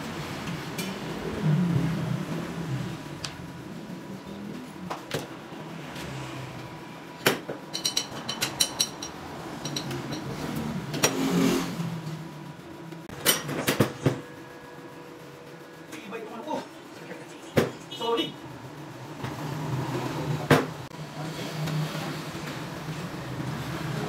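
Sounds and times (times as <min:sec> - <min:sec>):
broad rising and falling noise: 0:00.0 - 0:07.2.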